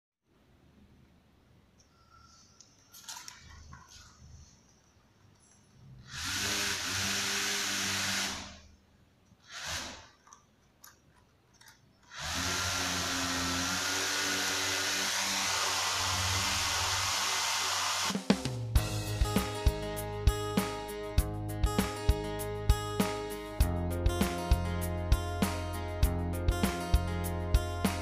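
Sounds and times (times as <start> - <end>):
small toy motor whirring: 6.0 - 8.6, 9.4 - 10.2, 12.1 - 18.1.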